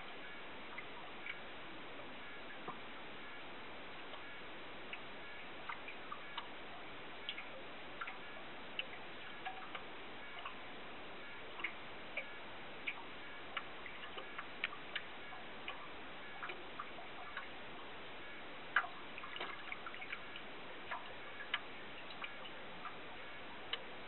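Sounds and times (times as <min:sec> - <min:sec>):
steady underwater hiss: 0:00.0 - 0:24.0.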